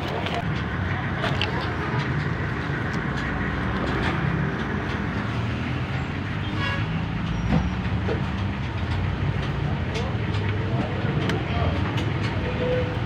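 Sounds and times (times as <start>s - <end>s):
vehicle engine rumbling: 0.0s - 13.0s
faint clicks and ticks: 7.8s - 12.5s.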